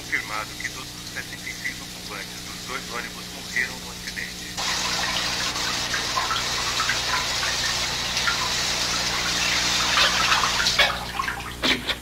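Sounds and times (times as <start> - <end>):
shower spraying water: 0.0 - 11.6.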